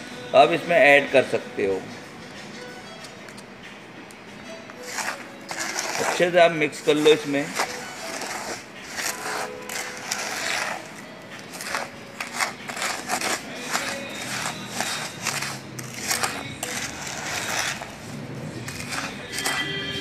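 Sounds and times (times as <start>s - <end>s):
plastic spoon scraping in a bowl: 4.8s - 20.0s.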